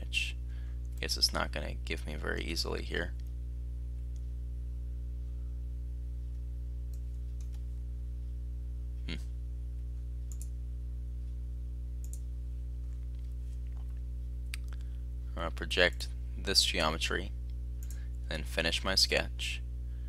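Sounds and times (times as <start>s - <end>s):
steady low hum: 0.0s - 20.0s
computer mouse clicks: 6.9s - 7.6s, 10.3s - 10.5s, 12.0s - 12.2s.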